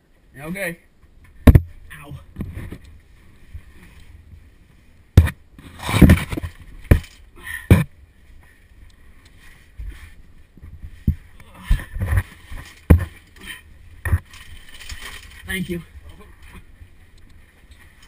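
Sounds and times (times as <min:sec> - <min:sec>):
gear scraping on rock: 0:14.0 - 0:16.0.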